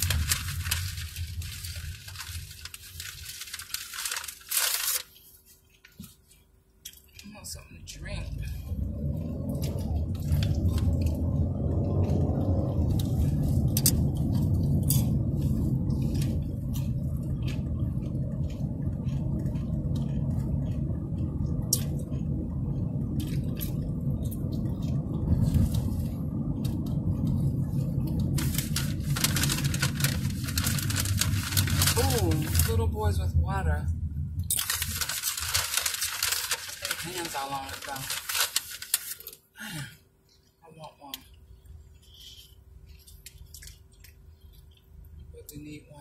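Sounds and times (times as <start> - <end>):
small clicks and crackles: 0.0 - 7.4, 22.8 - 32.8, 34.5 - 39.4
car cabin road and engine rumble: 0.0 - 46.0.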